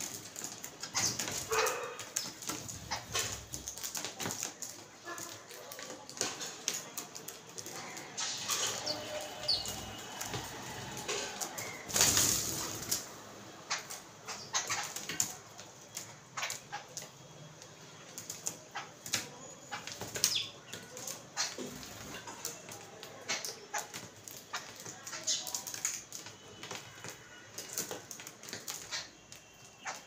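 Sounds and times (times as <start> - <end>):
bills pecking on hard surface: 0.0 - 13.8.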